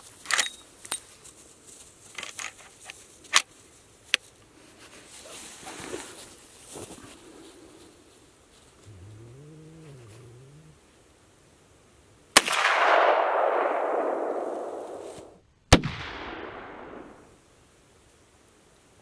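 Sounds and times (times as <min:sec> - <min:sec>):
rifle shots: 0:12.4 - 0:17.3.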